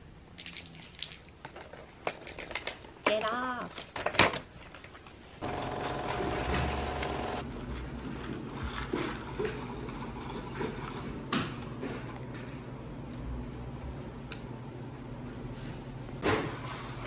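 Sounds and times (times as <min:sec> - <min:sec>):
machine whirring: 0:05.4 - 0:07.4.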